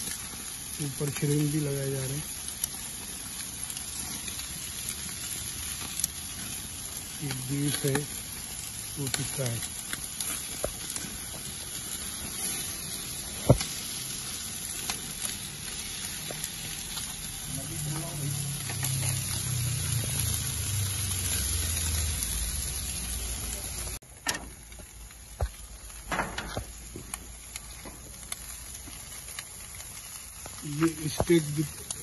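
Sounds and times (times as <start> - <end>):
meat sizzling on grill: 0.0 - 32.0
low rumble: 16.4 - 28.7.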